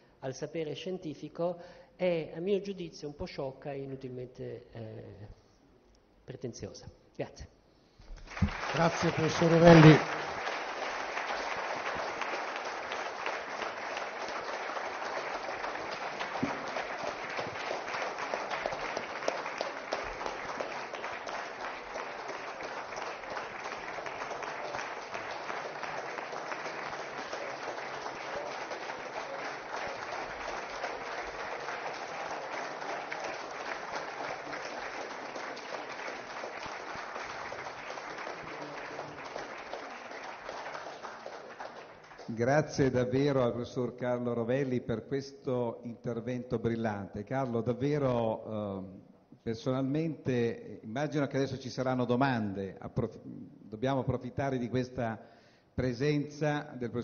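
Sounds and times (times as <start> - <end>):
audience applauding: 8.2 - 42.9.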